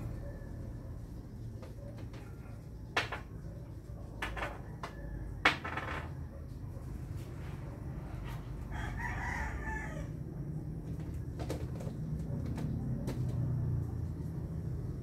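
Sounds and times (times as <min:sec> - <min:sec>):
rooster crowing: 0:08.6 - 0:10.4.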